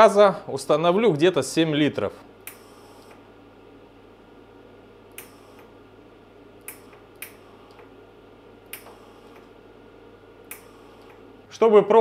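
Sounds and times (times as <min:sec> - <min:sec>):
welder humming: 0:02.3 - 0:11.6.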